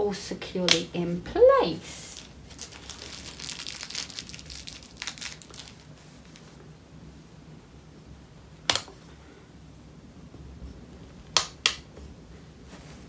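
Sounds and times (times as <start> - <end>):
crinkly handling noise: 2.0 - 6.8
elastic band snap: 8.6 - 9.0, 11.3 - 11.9.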